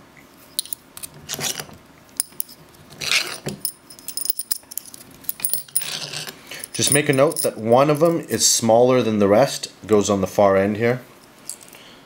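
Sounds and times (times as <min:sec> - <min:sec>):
metal screws clinking: 0:02.2 - 0:08.2.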